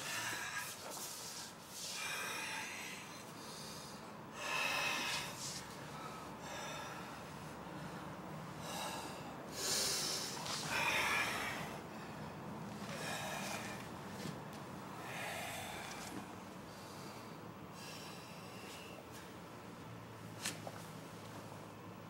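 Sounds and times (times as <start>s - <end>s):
person breathing hard: 0.0s - 14.3s, 14.9s - 19.2s.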